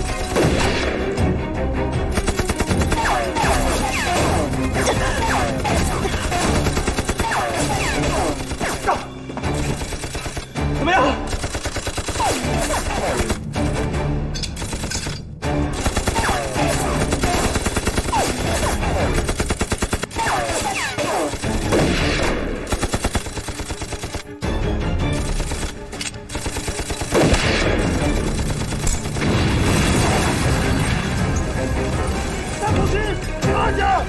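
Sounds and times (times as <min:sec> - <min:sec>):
dramatic music score: 0:00.0 - 0:34.0
automatic gunfire: 0:05.5 - 0:08.8, 0:11.3 - 0:13.4, 0:15.8 - 0:24.2.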